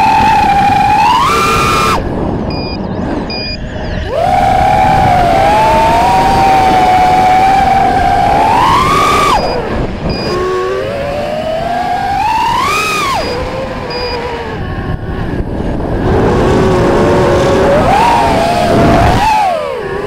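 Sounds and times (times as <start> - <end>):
drone motors whining: 0.0 - 20.0
faint short beeps: 2.5 - 4.0, 9.4 - 10.4, 13.2 - 14.3.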